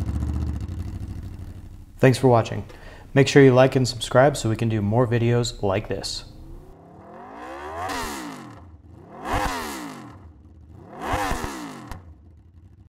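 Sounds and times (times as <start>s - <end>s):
motorcycle engine revving: 0.0s - 2.0s, 6.2s - 12.9s.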